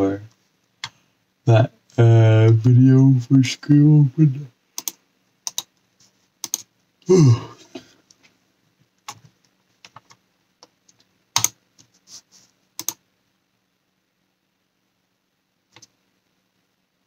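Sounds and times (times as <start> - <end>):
computer keys clicking: 4.8 - 5.8, 6.4 - 6.7, 9.0 - 11.9, 12.8 - 13.0, 15.7 - 16.0
person yawning: 7.0 - 7.9.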